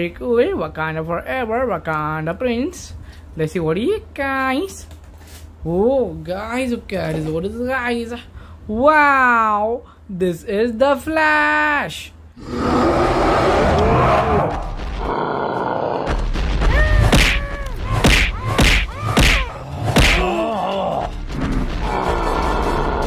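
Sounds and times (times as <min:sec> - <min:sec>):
cartoon hits and thuds: 0:16.1 - 0:20.5
music: 0:16.1 - 0:23.0
cartoon voices grunting and crying: 0:16.7 - 0:23.0.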